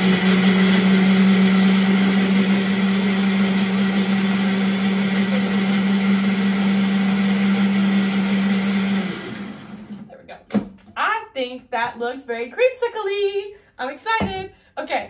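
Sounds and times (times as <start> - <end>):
blender motor humming: 0.0 - 10.1.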